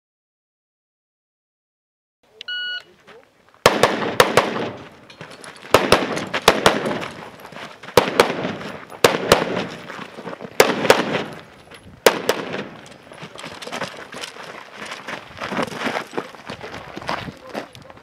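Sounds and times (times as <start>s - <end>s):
rifle shots with echo: 3.6s - 5.1s, 5.7s - 7.2s, 7.9s - 9.9s, 10.6s - 13.0s.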